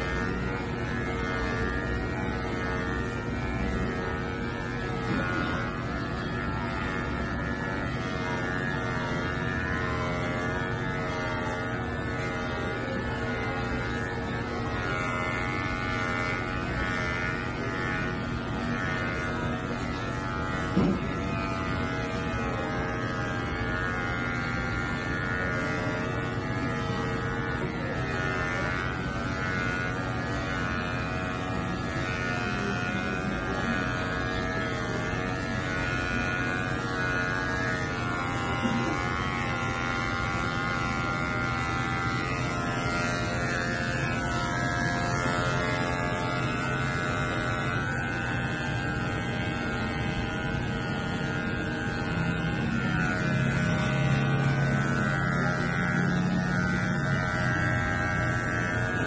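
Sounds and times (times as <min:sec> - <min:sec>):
electric clippers buzzing: 0:00.0 - 0:59.0.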